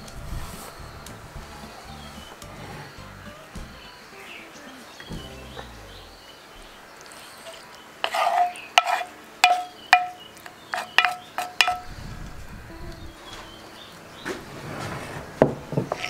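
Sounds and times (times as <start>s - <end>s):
wooden spoon knocking on bowl: 8.8s - 10.2s, 10.8s - 11.8s.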